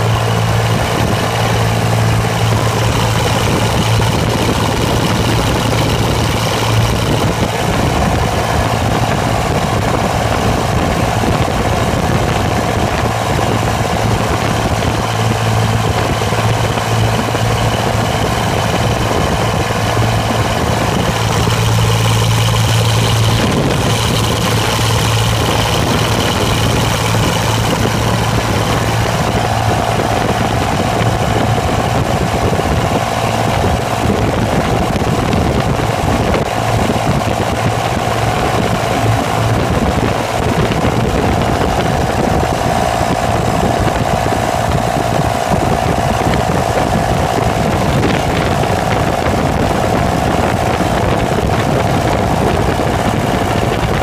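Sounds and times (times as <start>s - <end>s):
diesel tractor engine running: 0.0s - 54.0s.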